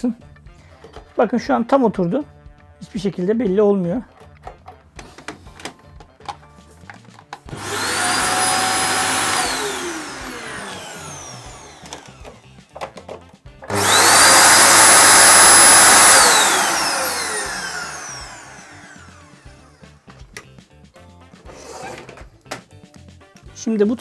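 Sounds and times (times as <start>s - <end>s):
vacuum motor whining and winding down: 7.5s - 12.6s, 13.6s - 20.0s.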